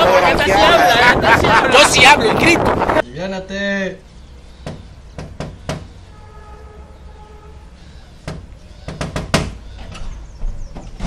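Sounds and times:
knuckles knocking on metal door: 4.6 - 5.9.

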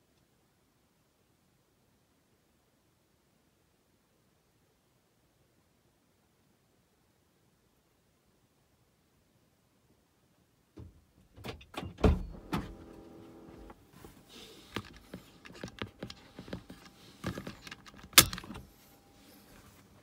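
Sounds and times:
clicks and rattles inside car: 10.8 - 18.7.

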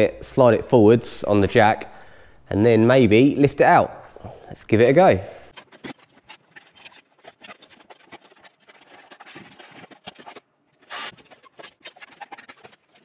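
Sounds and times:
scraping and rubbing: 5.4 - 13.0.

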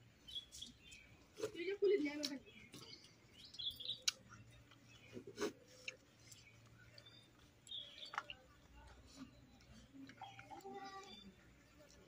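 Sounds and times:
people eating from steel plates: 0.1 - 12.0
faint bird chirps: 2.4 - 11.5.

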